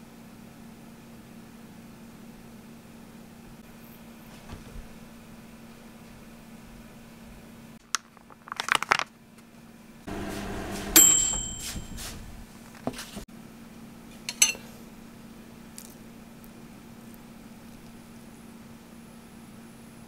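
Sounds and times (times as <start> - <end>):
plastic crinkling: 7.8 - 9.1
sharp metallic clink: 11.0 - 12.1.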